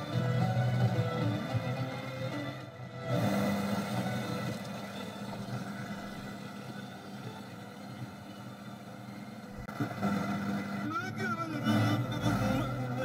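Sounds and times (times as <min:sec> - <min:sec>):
radio receiver static rushing: 0:09.6 - 0:12.7.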